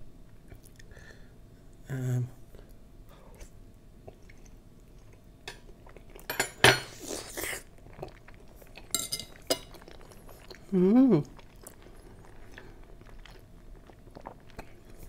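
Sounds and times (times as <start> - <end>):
fork clinking on a plate: 9.0 - 9.7.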